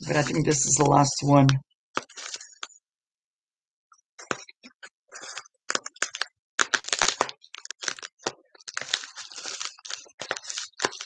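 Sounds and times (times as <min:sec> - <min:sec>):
packing wrap crackling and rustling: 0:02.0 - 0:02.8, 0:04.2 - 0:11.0.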